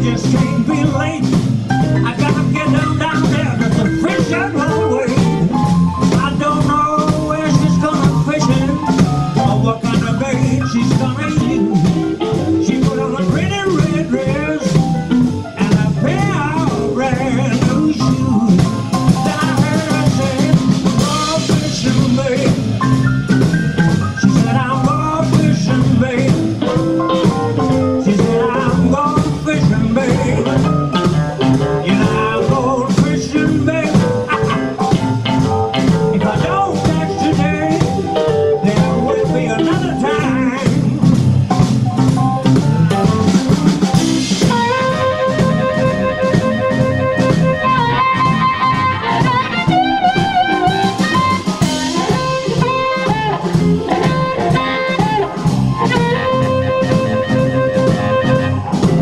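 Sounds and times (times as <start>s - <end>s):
man singing: 0.0s - 23.1s, 23.8s - 43.2s, 43.8s - 59.0s
blues band playing: 0.0s - 59.0s.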